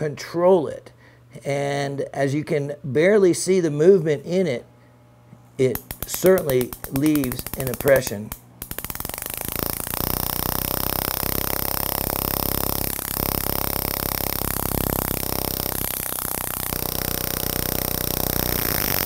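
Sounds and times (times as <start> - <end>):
hammer handpiece buzzing on metal: 5.7 - 19.0.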